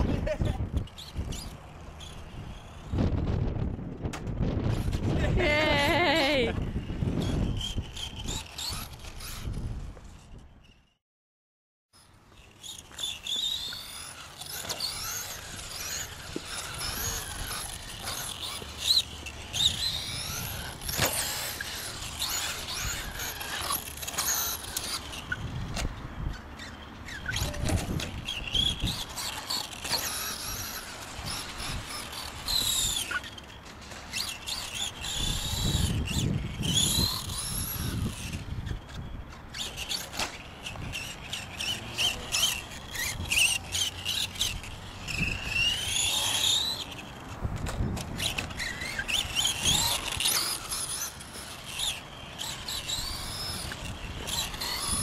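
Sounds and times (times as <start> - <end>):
electric motor whine: 12.1 - 55.0.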